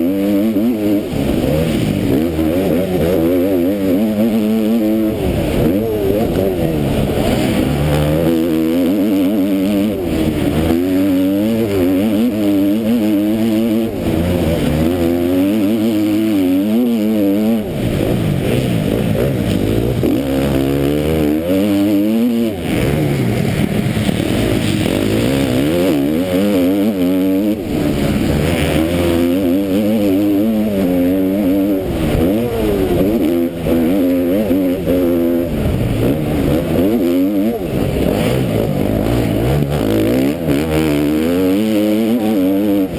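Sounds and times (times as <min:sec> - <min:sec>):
motocross bike engine revving: 0:00.0 - 0:42.9.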